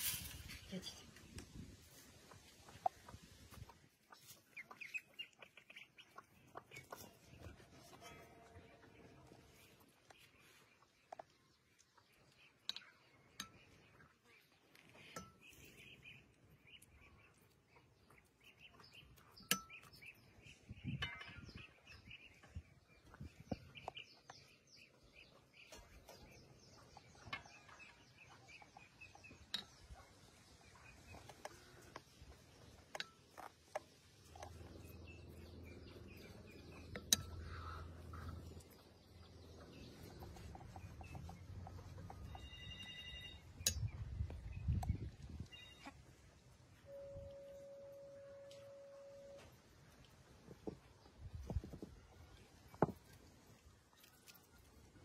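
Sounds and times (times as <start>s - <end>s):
small birds chirping: 0.0s - 55.0s
low steady hum: 33.9s - 51.4s.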